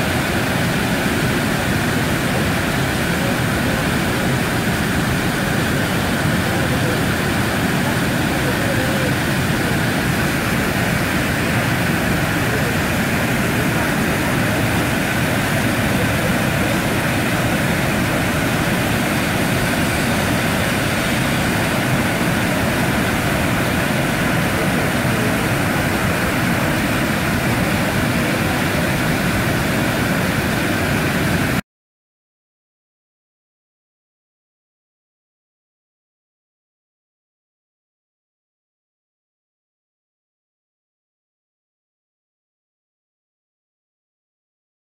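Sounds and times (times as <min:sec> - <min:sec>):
waterfall roaring: 0:00.0 - 0:31.6.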